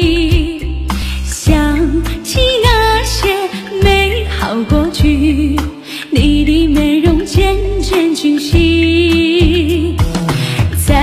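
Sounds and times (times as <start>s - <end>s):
woman singing pop ballad: 0.0s - 11.0s
heavy bass beat: 9.4s - 11.0s.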